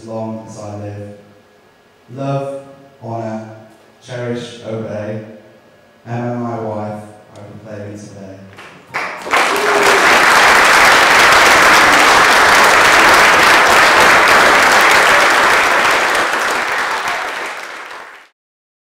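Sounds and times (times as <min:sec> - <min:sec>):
crowd applauding: 0:08.9 - 0:18.3.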